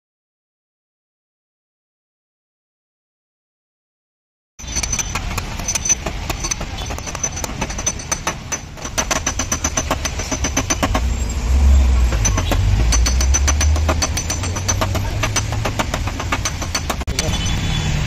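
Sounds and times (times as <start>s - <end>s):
small hammer tapping metal: 4.6s - 11.1s, 12.1s - 17.3s
low engine rumble: 4.6s - 17.5s.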